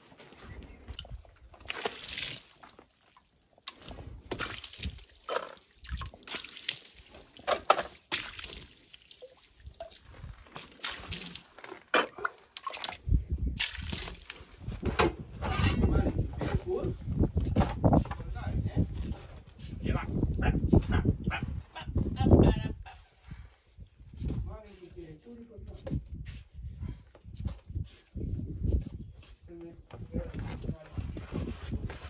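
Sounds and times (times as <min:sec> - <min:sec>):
water sloshing and dripping: 0:00.8 - 0:14.7
water splashing against stone wall: 0:00.9 - 0:14.5.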